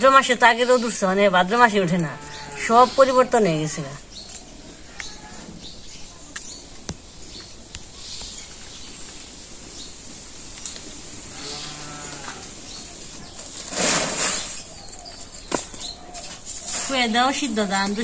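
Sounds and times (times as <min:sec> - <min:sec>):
cow mooing: 0:02.0 - 0:03.0, 0:04.8 - 0:05.5, 0:11.3 - 0:12.6.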